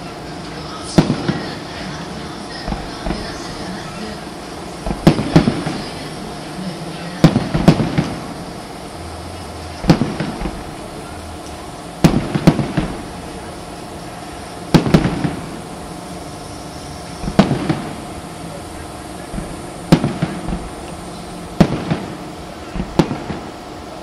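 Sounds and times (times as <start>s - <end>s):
firework shells bursting: 2.5s - 6.5s, 7.1s - 8.9s, 9.7s - 23.9s
small firework pops: 4.8s - 5.9s, 7.2s - 8.2s, 9.8s - 10.8s, 11.4s - 13.1s, 14.7s - 15.4s, 17.2s - 18.0s, 19.3s - 21.0s, 21.6s - 22.1s, 22.7s - 23.6s.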